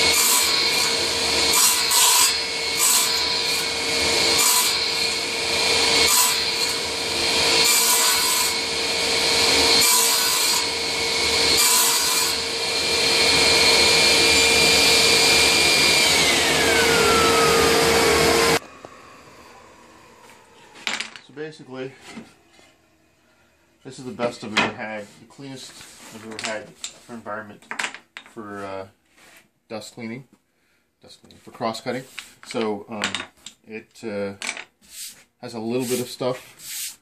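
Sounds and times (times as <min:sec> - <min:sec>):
saw blade cutting wooden board: 0:00.0 - 0:18.7, 0:34.9 - 0:37.0
radial arm saw running: 0:00.0 - 0:20.8
saw motor spinning down: 0:00.0 - 0:20.9
dust collector drawing air: 0:12.6 - 0:20.8.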